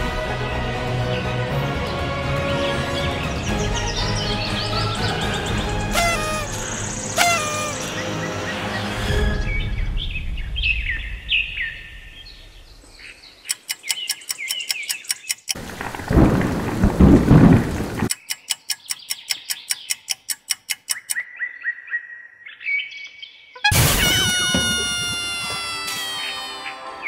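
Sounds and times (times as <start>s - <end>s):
fast regular ticking: 13.4s - 15.6s, 18.1s - 21.2s
rumble of thunder: 15.6s - 18.1s.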